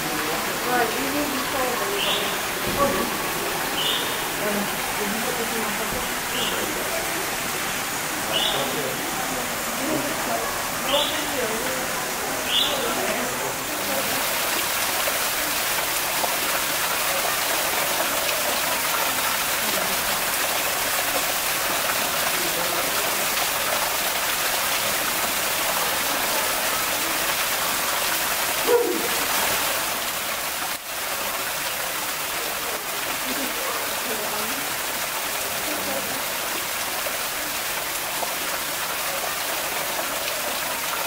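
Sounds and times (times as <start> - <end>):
waterfall splashing into pool: 0.0 - 41.0.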